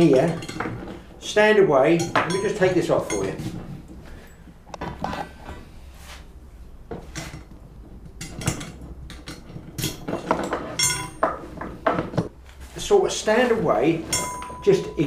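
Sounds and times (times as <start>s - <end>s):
metal chain clinking and rattling: 2.0s - 4.5s, 7.2s - 11.6s, 14.1s - 15.0s.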